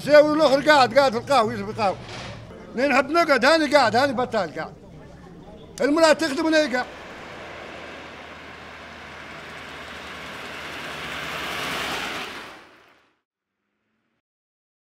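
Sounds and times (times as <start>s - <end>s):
vehicle passing: 6.2s - 13.1s.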